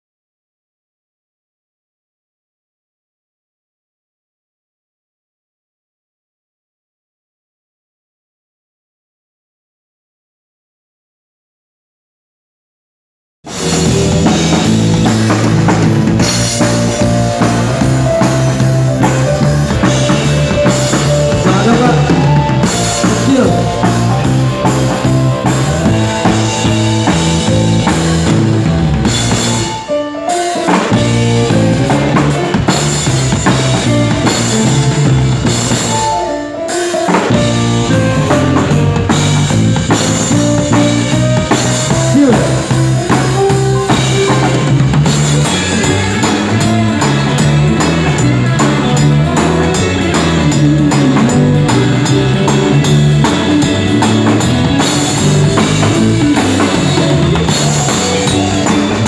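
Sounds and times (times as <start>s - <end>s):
drum kit beat: 13.5s - 59.0s
electric guitar: 13.5s - 59.0s
live band playing: 13.5s - 59.0s.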